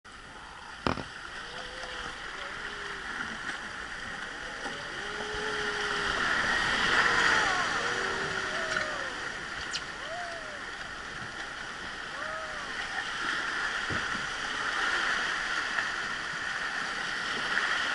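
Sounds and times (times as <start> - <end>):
faint wavering tones: 0.2 - 13.8
river rapids rushing: 1.2 - 16.1.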